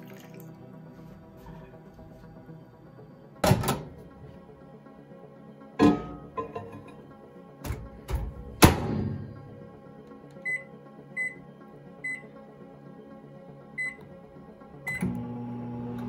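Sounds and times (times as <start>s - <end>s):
keypad beeps: 10.4s - 11.4s, 13.8s - 14.0s
microwave humming: 14.8s - 16.0s.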